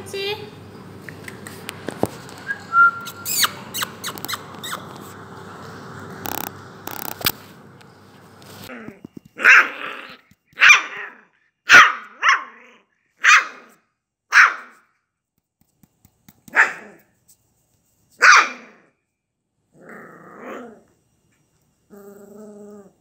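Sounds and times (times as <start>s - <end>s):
puppy yapping: 3.0s - 5.2s, 9.4s - 14.8s, 16.5s - 17.0s, 18.2s - 18.8s.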